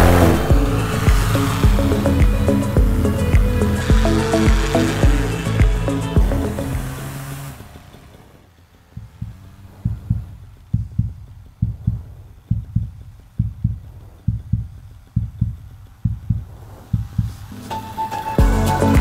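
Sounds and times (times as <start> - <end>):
heartbeat thumps: 0.0 - 7.0, 8.9 - 17.5
background music: 0.0 - 7.5, 17.6 - 19.0.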